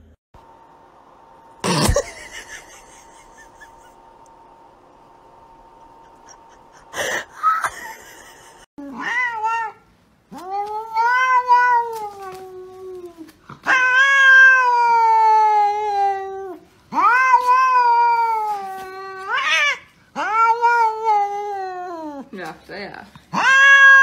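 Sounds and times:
cat meowing: 8.9 - 22.0, 23.3 - 24.0.

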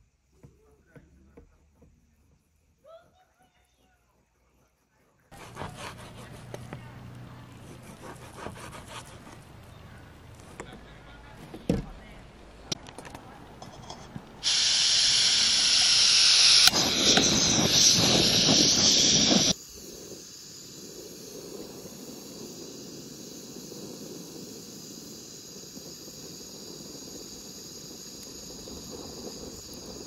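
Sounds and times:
gas hissing from stove burner: 13.6 - 30.0
burner flame rushing: 14.4 - 30.0.

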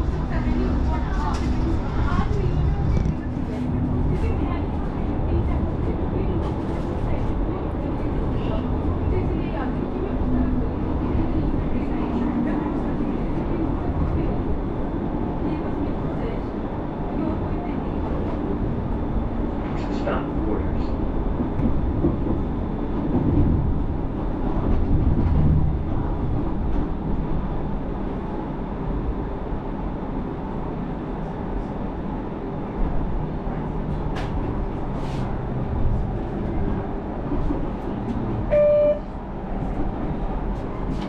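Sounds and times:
tram rumbling: 0.0 - 41.0
short high beep: 38.5 - 39.0.

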